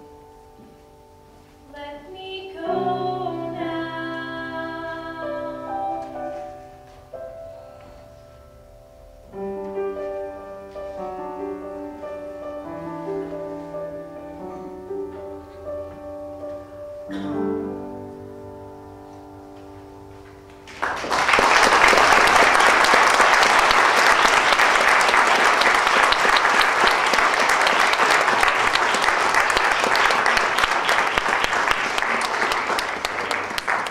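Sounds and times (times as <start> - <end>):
piano chords: 0.0 - 33.9
audience applause: 20.7 - 33.9.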